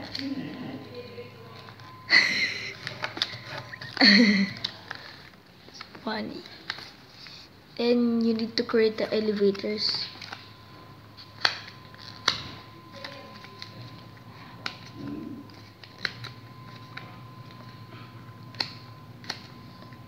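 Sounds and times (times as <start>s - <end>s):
paper crackling and snapping: 2.7s - 7.0s, 11.2s - 20.0s.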